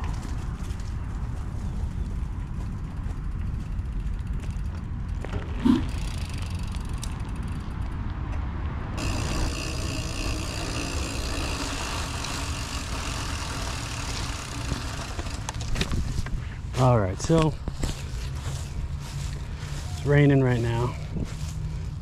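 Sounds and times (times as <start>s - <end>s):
bike tyres rolling: 0.0s - 8.2s, 9.0s - 19.8s
tyres rolling on concrete: 9.0s - 16.0s
wind noise rumbling: 14.3s - 19.5s.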